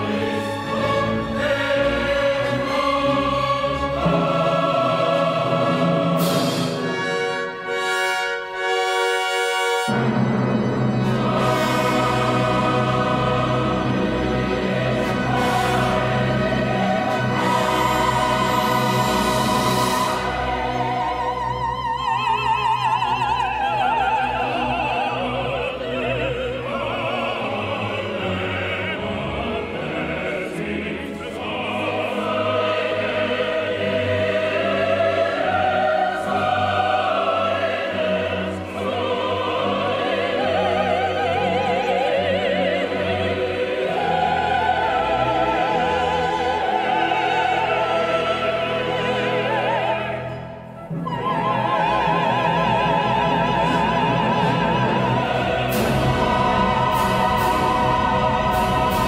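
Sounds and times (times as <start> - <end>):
choir singing: 0.0 - 59.0
symphony orchestra: 0.0 - 59.0
soprano singing with vibrato: 15.0 - 59.0.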